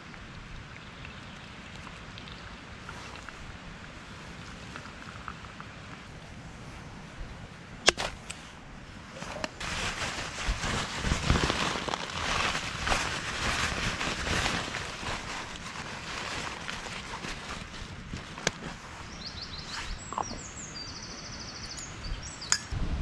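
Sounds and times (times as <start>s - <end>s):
dry bag crinkling: 9.6s - 19.0s.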